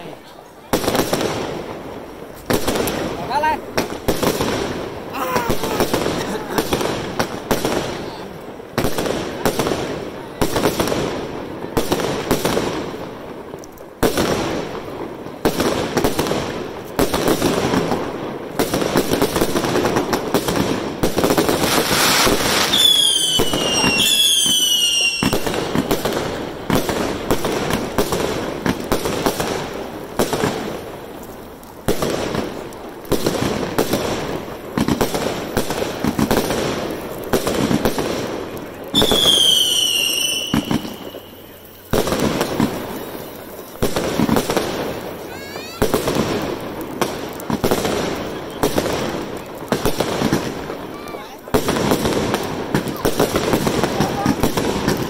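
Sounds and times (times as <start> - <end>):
fireworks bursting with sharp bangs: 0.0 - 55.0
whistling firework shots: 15.4 - 31.1, 31.8 - 55.0.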